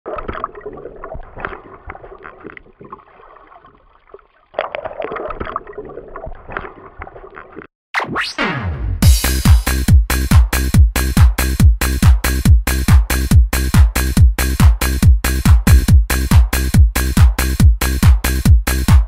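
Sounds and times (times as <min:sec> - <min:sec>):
water sloshing and gurgling: 0:00.1 - 0:07.7.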